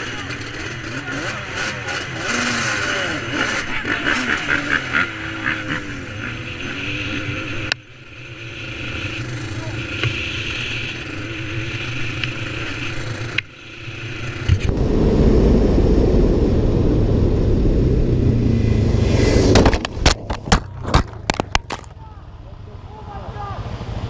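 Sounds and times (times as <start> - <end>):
quad bike engine running: 0.0 - 18.9
crash knocks and scrapes on dirt: 19.4 - 22.0.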